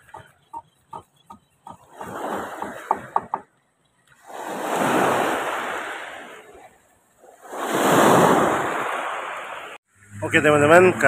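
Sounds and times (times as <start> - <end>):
water lapping: 0.0 - 9.8
small waves surging on shore: 1.8 - 3.2, 4.1 - 9.8.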